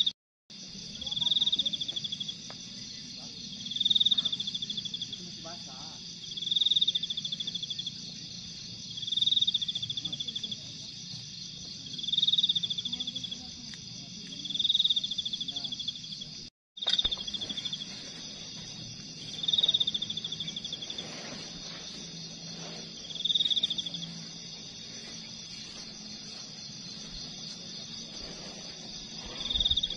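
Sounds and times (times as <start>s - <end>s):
insect pulsed call: 0.0s - 29.9s
insects high trill: 0.0s - 29.9s.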